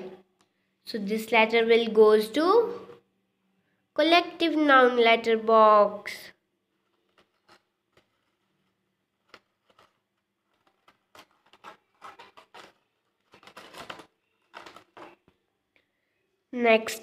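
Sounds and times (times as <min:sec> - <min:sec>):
paper envelopes rustling: 0:06.8 - 0:15.4.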